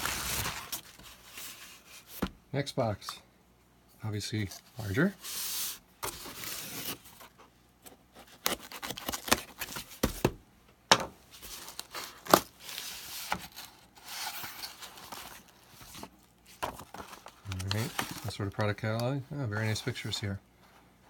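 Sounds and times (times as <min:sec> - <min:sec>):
paper and bubble wrap rustling: 0:00.0 - 0:02.2, 0:04.8 - 0:07.4, 0:08.1 - 0:10.1, 0:11.3 - 0:20.3
knife slitting packing tape: 0:08.3 - 0:09.7.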